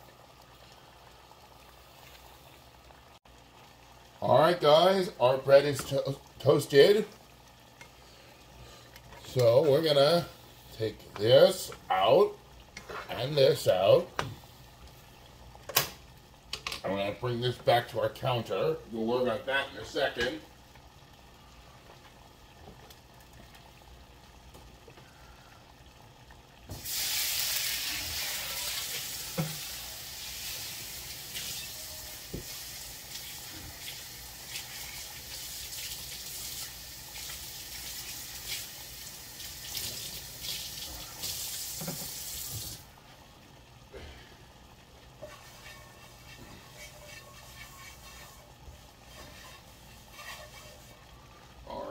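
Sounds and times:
water running from tap: 0:26.6 - 0:42.9.

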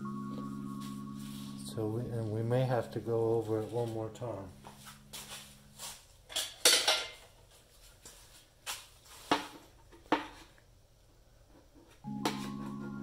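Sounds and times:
background music: 0:00.0 - 0:04.7, 0:12.1 - 0:13.0.

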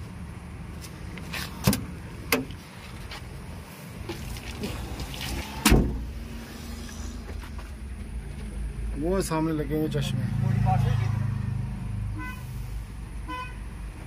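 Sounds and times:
truck door slamming shut: 0:05.6 - 0:06.1.

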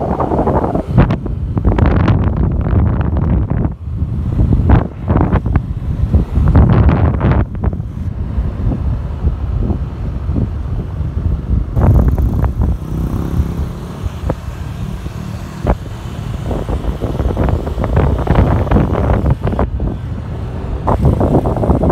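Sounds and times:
wind buffeting microphone: 0:00.0 - 0:21.9
motorcycle engine: 0:11.8 - 0:19.7.

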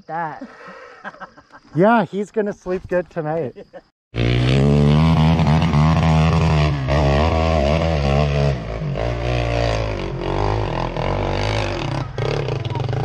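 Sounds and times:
off-road vehicle engine revving: 0:04.2 - 0:13.0.

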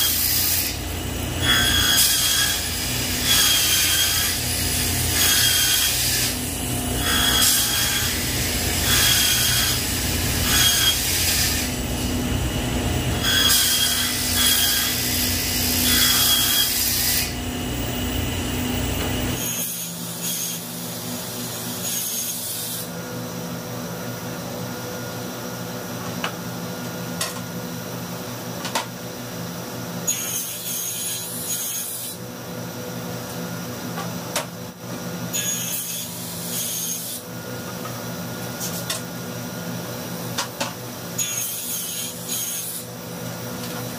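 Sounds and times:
table saw cutting boards: 0:00.0 - 0:23.0, 0:30.0 - 0:32.2, 0:35.3 - 0:39.1, 0:40.3 - 0:43.9.

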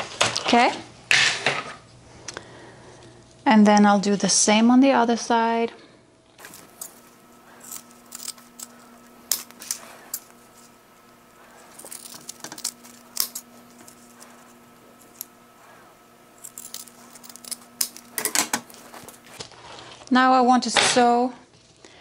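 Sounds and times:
faint steady hum: 0:01.8 - 0:20.2
scissors snipping: 0:11.6 - 0:19.4.

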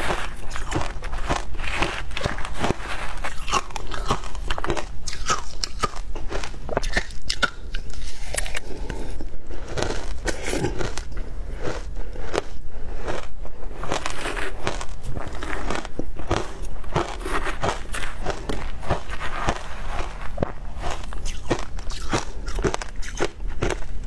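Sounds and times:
metal spoon scraping ice: 0:00.0 - 0:05.8
crunching and chewing ice: 0:00.0 - 0:24.0.

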